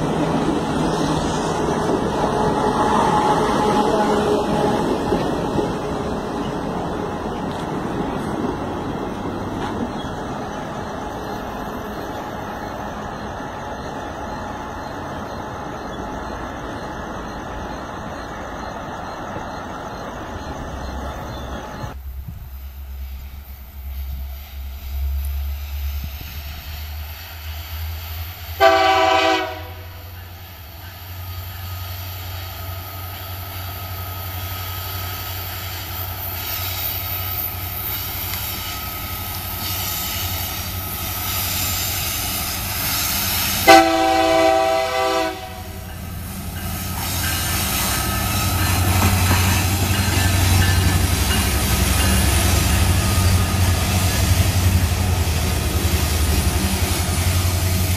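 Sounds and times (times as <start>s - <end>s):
locomotive engine rumble: 0.0s - 57.9s
locomotive horn blasts: 2.2s - 5.0s, 28.6s - 30.2s, 43.6s - 45.8s.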